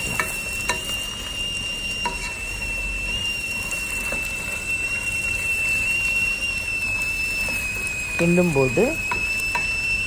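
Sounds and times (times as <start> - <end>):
spatula scraping pan: 0.0 - 8.3
high-pitched whine: 0.0 - 10.0
vegetables sizzling in oil: 0.0 - 10.0.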